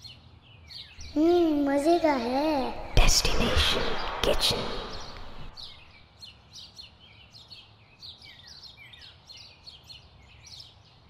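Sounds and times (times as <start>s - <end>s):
small birds chirping: 0.0s - 11.0s
loud noise: 1.0s - 5.8s.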